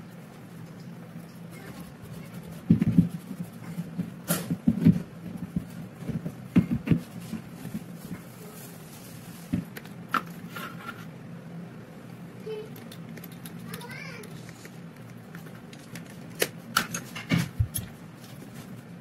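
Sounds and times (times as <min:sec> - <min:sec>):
cloth rubbing on metal: 0:01.2 - 0:04.2.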